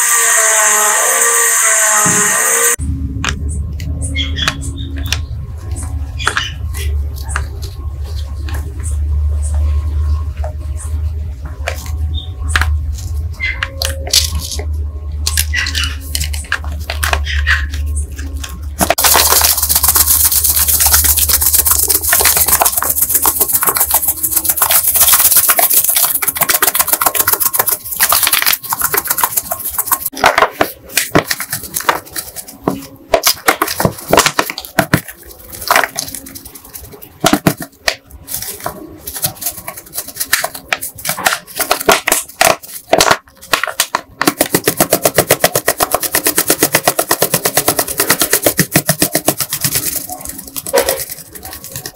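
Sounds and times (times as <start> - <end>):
bottle shaken rattling: 15.3 - 51.9
grit tapping and rattling: 18.2 - 51.9.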